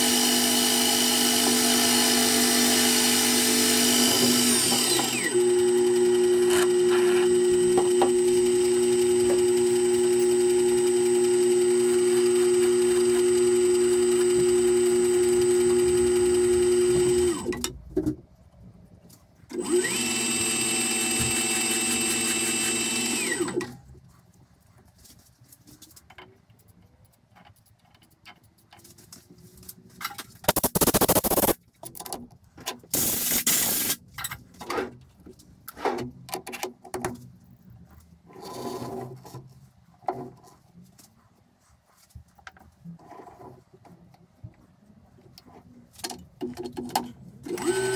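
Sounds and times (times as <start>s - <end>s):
metal lathe whining: 0.0s - 17.5s, 19.6s - 23.7s, 47.5s - 47.9s
short loud noise bursts: 30.5s - 31.6s.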